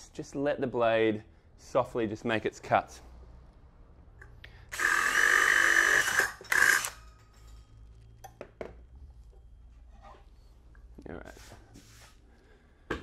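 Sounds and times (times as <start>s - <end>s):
cordless drill boring sheet metal: 4.7s - 7.1s.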